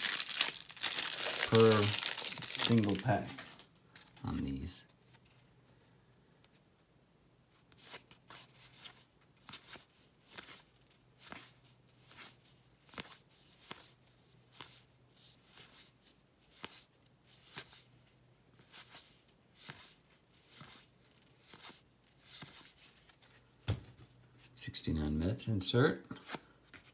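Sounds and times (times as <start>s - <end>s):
cards flipping papery swish: 7.7s - 14.8s.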